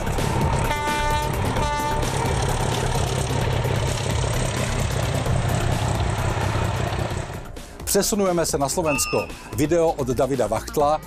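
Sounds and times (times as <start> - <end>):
diesel locomotive engine drone: 0.0 - 10.1
train horn toots: 0.6 - 2.2.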